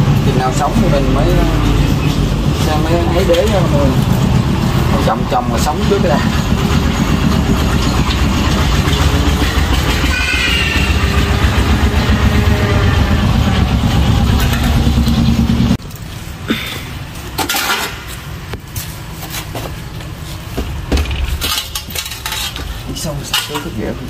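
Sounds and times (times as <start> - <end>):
low rumble: 0.0 - 15.8.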